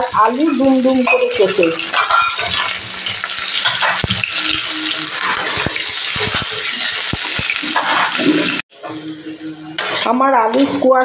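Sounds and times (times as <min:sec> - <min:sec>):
vegetables sizzling in hot oil: 0:00.0 - 0:10.2
metal spatula scraping pan: 0:00.4 - 0:09.0.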